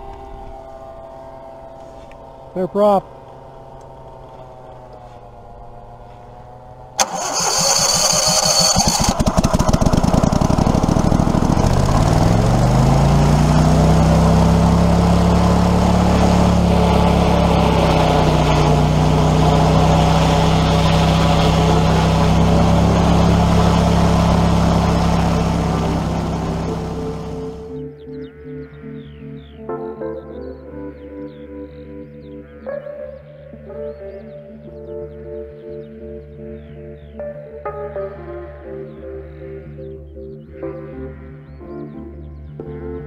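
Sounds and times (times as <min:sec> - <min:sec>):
paramotor engine: 0:00.0 - 0:27.8.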